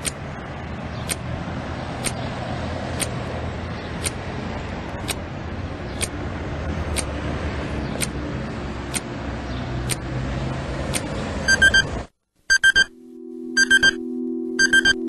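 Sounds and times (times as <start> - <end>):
clock ticking: 1.0 - 1.3, 2.0 - 2.2, 2.9 - 3.2, 4.0 - 4.2, 5.0 - 5.2, 6.9 - 7.2, 8.0 - 8.2, 8.9 - 9.2, 9.8 - 10.1
alarm clock beeps: 11.4 - 12.9, 13.6 - 14.0, 14.6 - 15.0.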